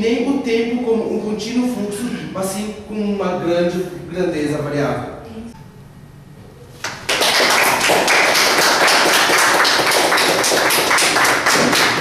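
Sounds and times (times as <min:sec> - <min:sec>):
people applauding: 0:06.8 - 0:12.0.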